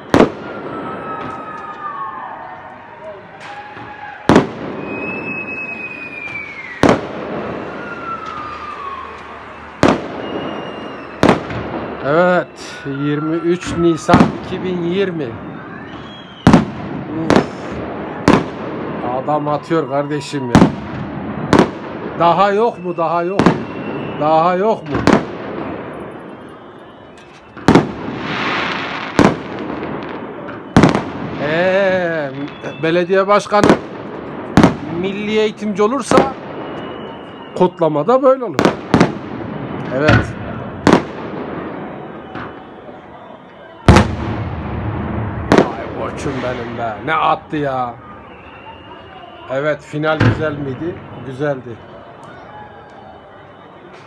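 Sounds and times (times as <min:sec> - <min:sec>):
fireworks bangs: 0:00.0 - 0:54.0
fireworks whistle falling: 0:00.0 - 0:54.0.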